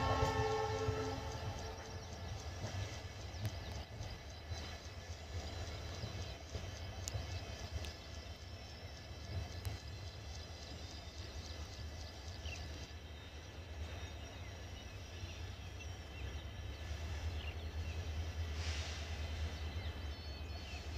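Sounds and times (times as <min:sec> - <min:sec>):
brief hiss: 0:18.5 - 0:19.5.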